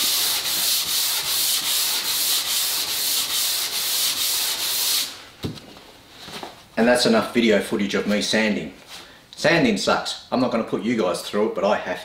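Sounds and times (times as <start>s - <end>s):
sandpaper rubbing on wood: 0.0s - 5.2s.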